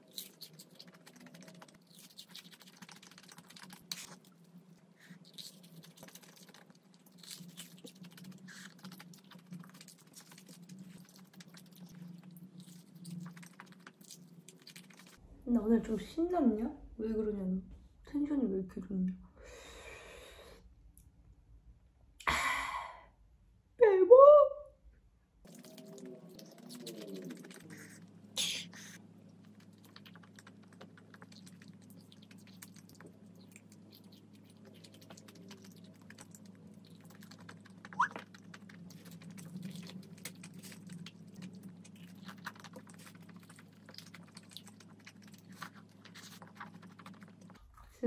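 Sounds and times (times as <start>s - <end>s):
chewing crunchy food: 0.0s - 15.2s, 25.4s - 48.0s.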